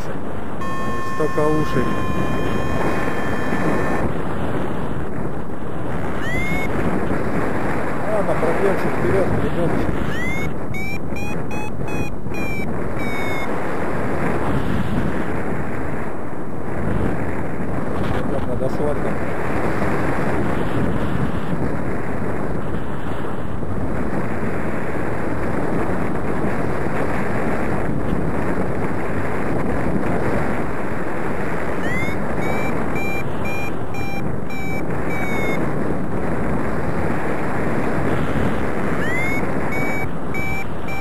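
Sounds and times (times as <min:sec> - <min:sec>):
wind on microphone: 0:00.0 - 0:41.0
variometer chirp and beeps: 0:00.6 - 0:04.1, 0:06.2 - 0:06.8, 0:10.0 - 0:13.5, 0:31.8 - 0:35.6, 0:39.0 - 0:41.0.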